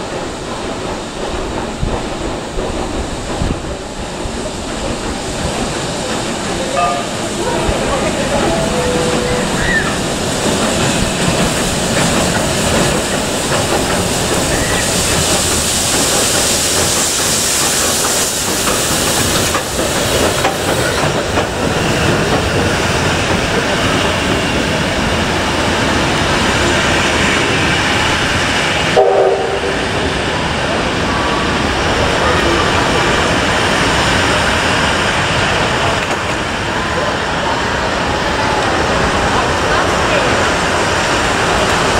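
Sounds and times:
train wheels clattering on rails: 0:00.0 - 0:41.9
brief pitched tone: 0:06.6 - 0:09.8.

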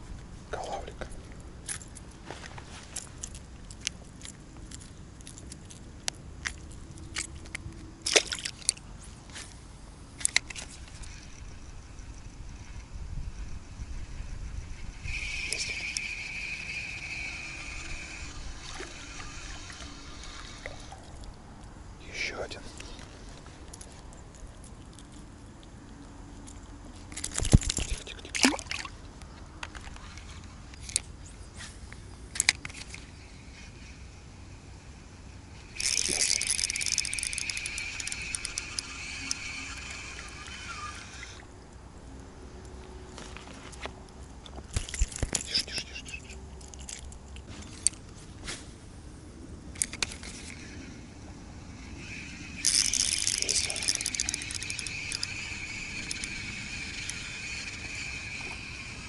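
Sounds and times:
faint river water: 0:00.0 - 0:59.0
fishing reel whirring: 0:10.0 - 0:21.3, 0:27.1 - 0:28.9, 0:32.3 - 0:41.6, 0:44.8 - 0:47.1, 0:49.8 - 0:59.0.

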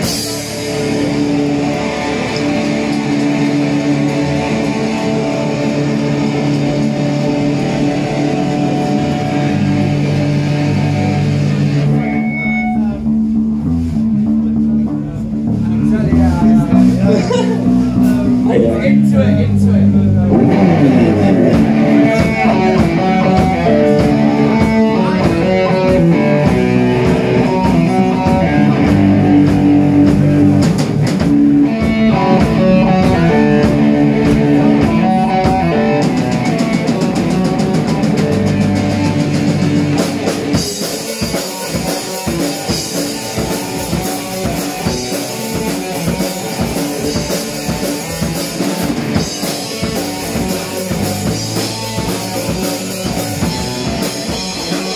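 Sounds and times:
fast drumming with cymbals: 0:00.0 - 0:12.8, 0:20.3 - 0:54.9
bass guitar: 0:00.0 - 0:54.9
electric guitar riffing: 0:00.0 - 0:54.9.

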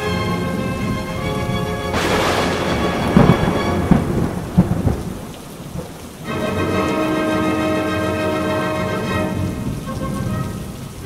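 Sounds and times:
steady rain: 0:00.0 - 0:11.0
thunder cracking and rumbling: 0:00.5 - 0:06.6.

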